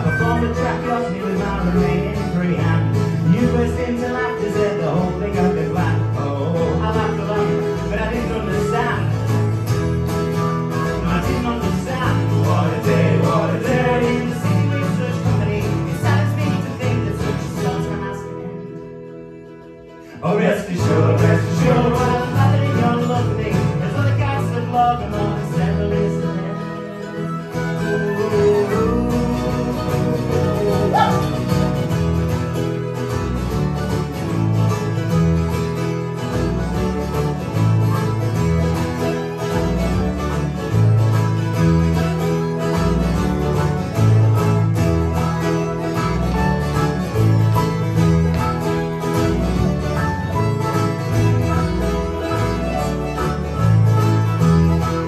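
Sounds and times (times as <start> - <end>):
folk band playing: 0.0 - 55.0
person singing: 11.0 - 31.8.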